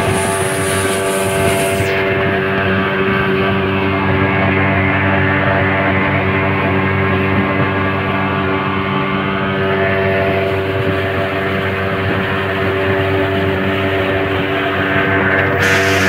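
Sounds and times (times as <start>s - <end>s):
motorboat engine droning: 0.0s - 16.0s
wind: 0.0s - 16.0s.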